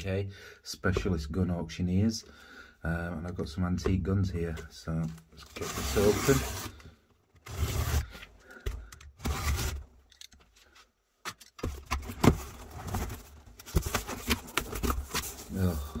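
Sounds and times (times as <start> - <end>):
packing tape and cardboard rustling: 5.2 - 8.2, 9.2 - 10.4, 11.5 - 16.0.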